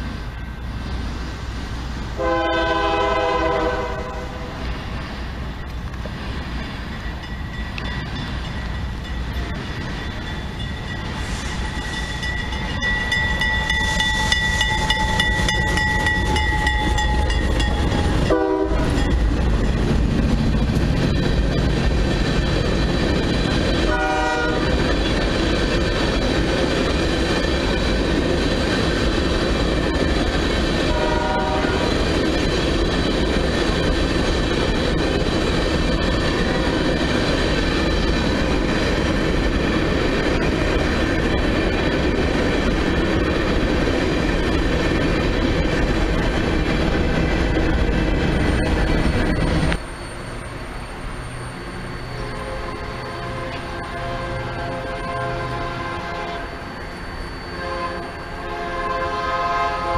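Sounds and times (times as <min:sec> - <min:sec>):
freight train rumbling past: 0:00.0 - 0:59.9
locomotive horn: 0:02.2 - 0:04.6, 0:18.3 - 0:19.0, 0:23.9 - 0:24.8, 0:30.8 - 0:32.0, 0:52.4 - 0:56.6, 0:57.6 - 0:59.9.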